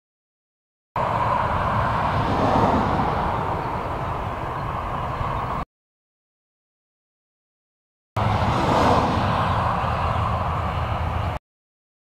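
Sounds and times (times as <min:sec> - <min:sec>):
car driving past: 0:01.0 - 0:05.6, 0:08.2 - 0:11.4.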